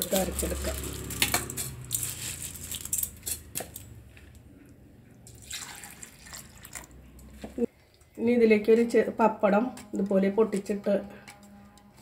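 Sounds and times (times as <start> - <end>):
syrup pouring: 5.3 - 7.0.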